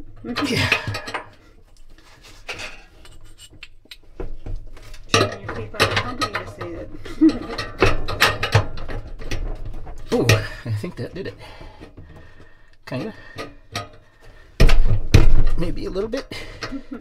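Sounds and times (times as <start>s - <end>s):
metal knocking in dryer drum: 0.0s - 1.4s, 4.1s - 12.6s.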